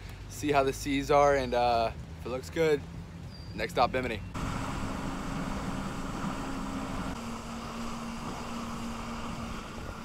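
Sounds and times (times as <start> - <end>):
rushing water: 0.0 - 10.0
wind: 0.0 - 10.0
jet ski engine running: 4.4 - 10.0.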